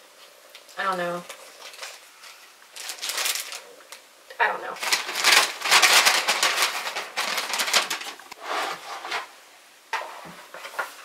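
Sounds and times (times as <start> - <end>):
plastic and paper bags crinkling: 0.6 - 4.0, 4.6 - 9.3.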